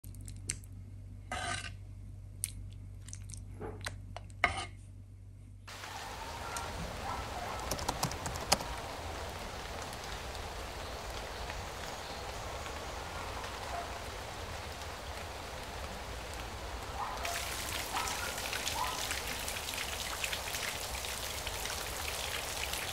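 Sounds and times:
dripping and trickling water: 0:05.7 - 0:22.9.

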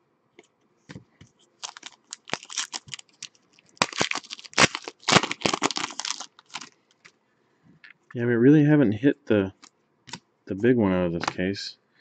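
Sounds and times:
foil wrapper tearing and crinkling: 0:01.6 - 0:06.8.

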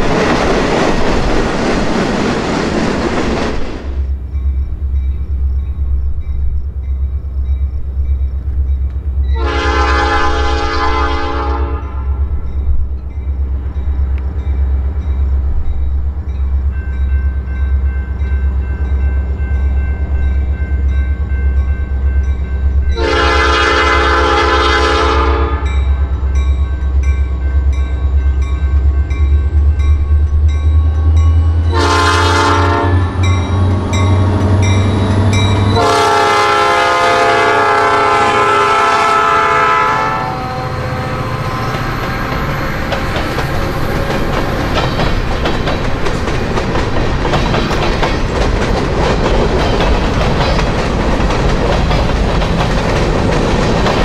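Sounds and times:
diesel locomotive rumble: 0:00.0 - 0:54.0
train air horn blasts: 0:09.3 - 0:12.4, 0:23.0 - 0:25.8, 0:31.4 - 0:33.3, 0:35.2 - 0:42.3
freight cars clickety-clack: 0:41.4 - 0:54.0.

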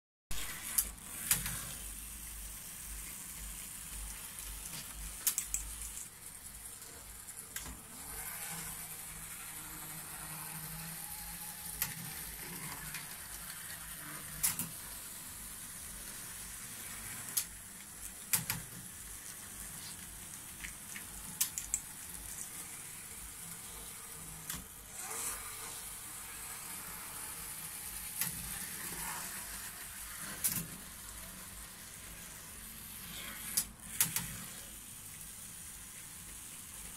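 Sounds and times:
model train hiss and hum: 0:00.4 - 0:36.9
model train track click: 0:14.4 - 0:14.8, 0:20.6 - 0:21.9, 0:33.5 - 0:34.4.

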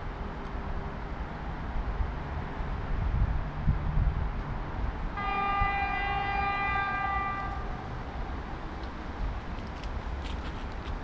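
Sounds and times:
wind on microphone: 0:02.8 - 0:05.8
electric locomotive horn blast: 0:05.2 - 0:07.8.

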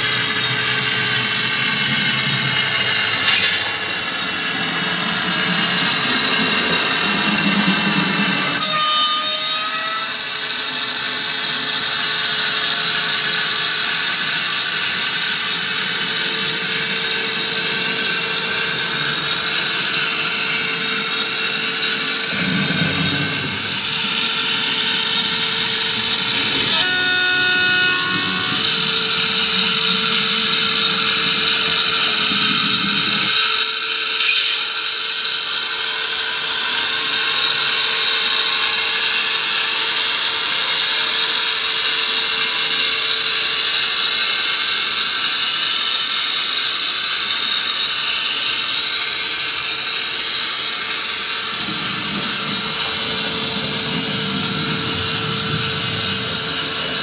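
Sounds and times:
model train motor running: 0:00.0 - 0:57.0
sharp click: 0:03.2 - 0:03.7, 0:34.2 - 0:34.8
model train horn blast: 0:26.5 - 0:30.3.

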